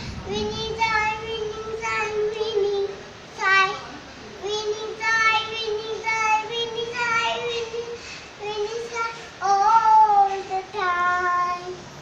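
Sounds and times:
girl singing: 0:00.0 - 0:11.9.

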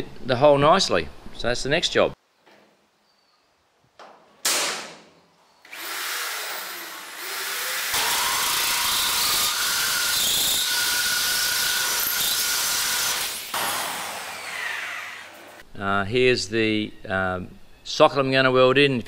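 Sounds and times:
hole saw grinding through steel: 0:05.7 - 0:15.6.

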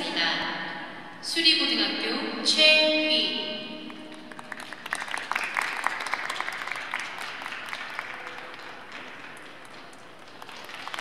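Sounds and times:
audience applause: 0:04.1 - 0:11.0.

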